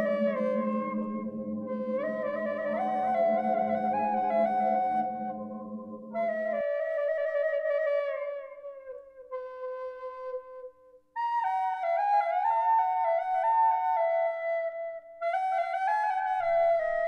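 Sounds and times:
low background layer: 0.0s - 9.5s
flute music: 0.0s - 17.0s.

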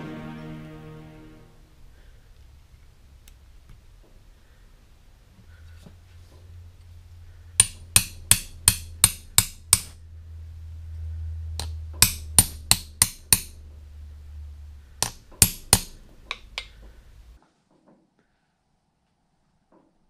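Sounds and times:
hammer tapping metal punch: 7.6s - 10.0s, 11.6s - 13.6s, 15.0s - 16.8s.

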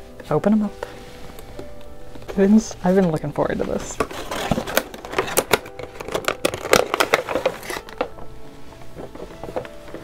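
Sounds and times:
plastic packaging crinkling: 2.9s - 10.0s.

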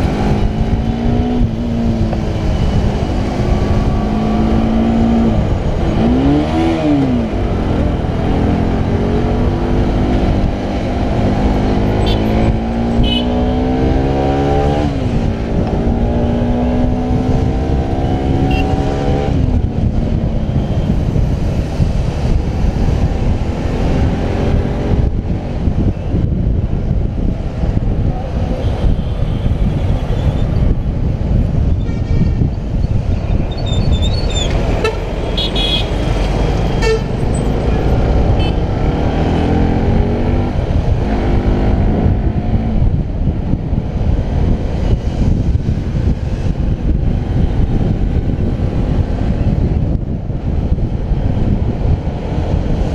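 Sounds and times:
wind and road noise: 0.0s - 52.9s
horn toots: 12.0s - 13.6s, 34.8s - 37.5s.

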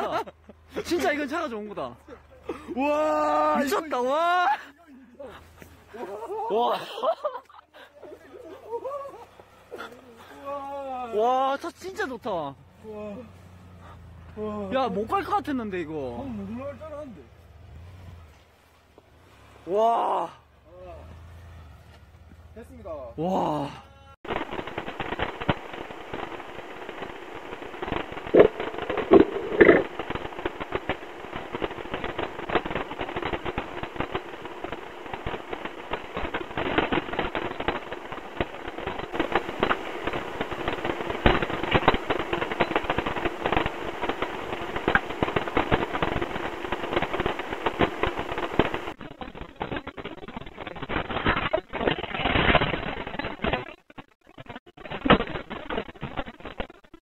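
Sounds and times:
crackling and popping: 0.0s - 12.6s, 13.6s - 19.1s, 21.3s - 57.0s
engine drone: 8.8s - 56.7s.

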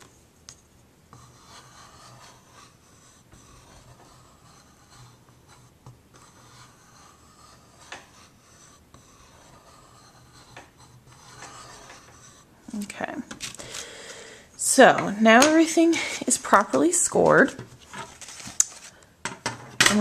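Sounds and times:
scoring tool scraping cardstock: 1.1s - 13.8s.

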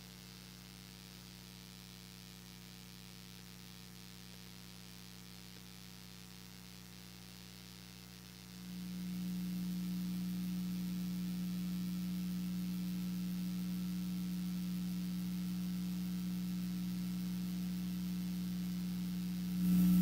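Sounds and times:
low electronic drone: 8.7s - 17.6s, 19.3s - 20.0s.

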